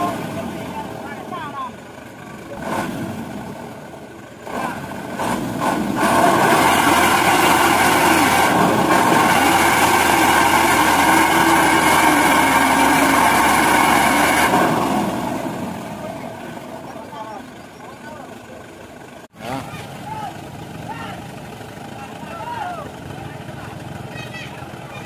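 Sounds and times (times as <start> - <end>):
diesel truck engine revving: 0.0 - 25.0.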